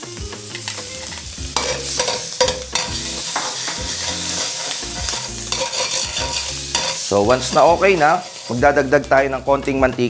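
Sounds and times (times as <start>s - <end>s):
butter sizzling in a wok: 0.0s - 10.0s
ladle scraping a wok: 1.1s - 8.6s.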